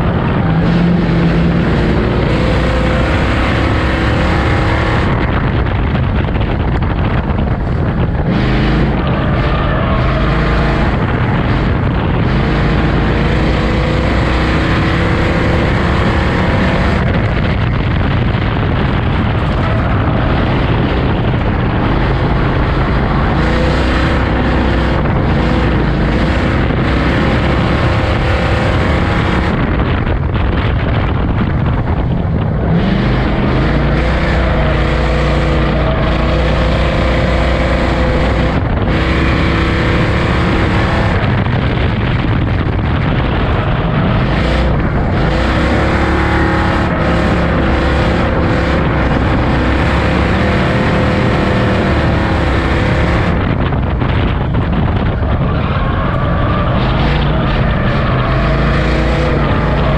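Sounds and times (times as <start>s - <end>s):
race car engine revving: 0.0s - 59.9s
wind noise on microphone: 0.0s - 59.9s.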